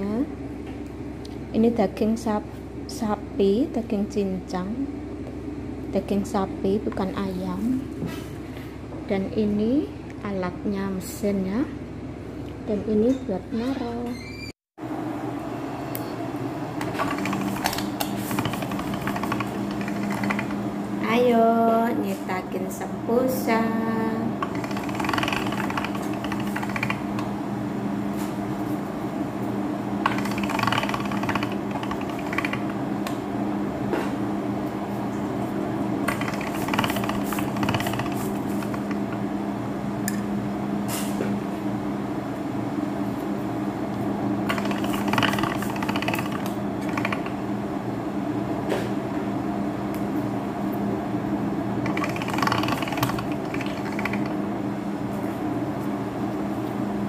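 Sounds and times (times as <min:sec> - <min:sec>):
pasta roller machine humming: 0:14.8 - 0:40.8, 0:41.6 - 0:48.6, 0:49.3 - 0:57.0.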